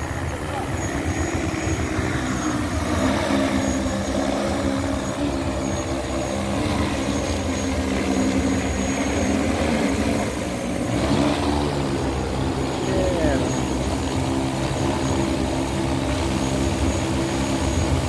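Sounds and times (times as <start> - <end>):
drone propellers humming: 0.0 - 18.0.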